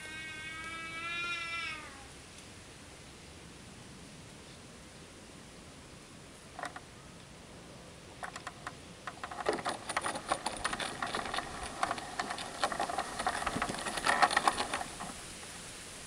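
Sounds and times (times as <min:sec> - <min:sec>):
wheels clattering on track: 0:06.6 - 0:06.8, 0:08.2 - 0:15.8.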